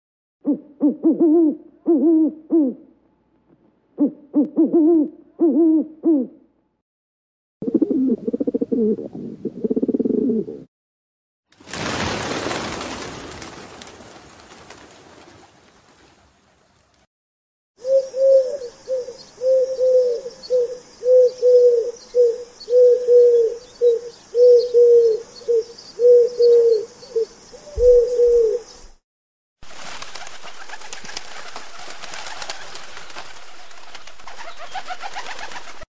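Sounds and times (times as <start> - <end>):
pigeon cooing: 0.5 - 2.9, 4.0 - 6.5, 7.6 - 10.7, 17.8 - 28.8.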